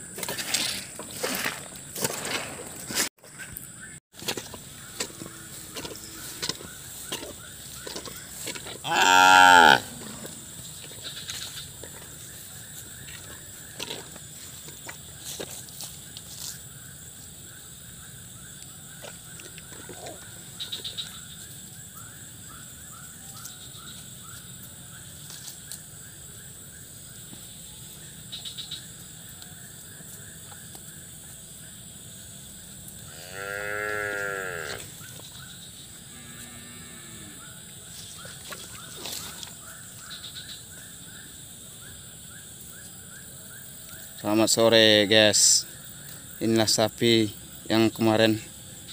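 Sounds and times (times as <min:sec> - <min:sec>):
cow mooing: 0:08.8 - 0:10.4, 0:33.1 - 0:34.9, 0:36.1 - 0:37.4.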